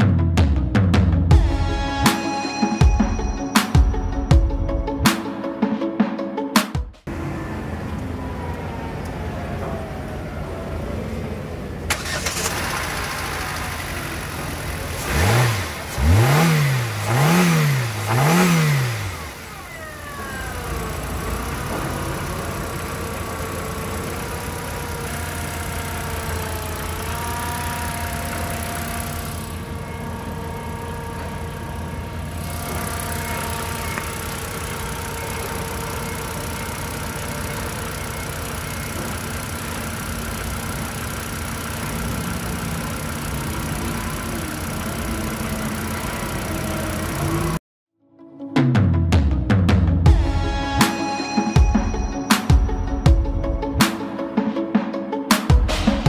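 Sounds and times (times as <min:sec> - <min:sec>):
car engine idling and revving: 0:07.0 - 0:47.6.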